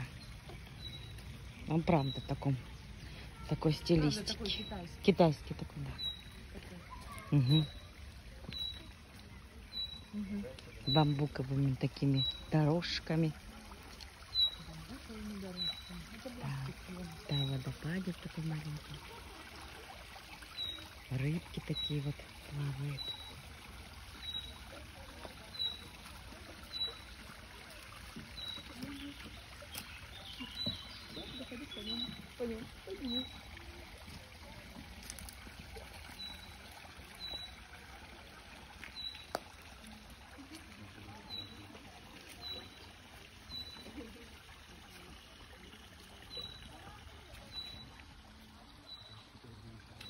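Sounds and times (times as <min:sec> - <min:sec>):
water trickling into a pond: 0:00.0 - 0:50.0
faint voices: 0:13.3 - 0:50.0.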